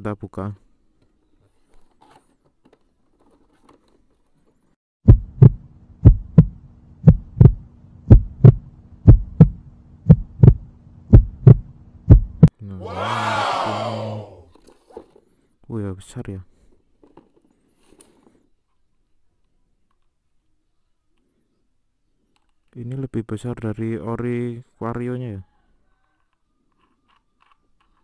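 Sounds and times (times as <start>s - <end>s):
heartbeat thumps: 5.0s - 12.5s
steady low hum: 5.1s - 12.5s.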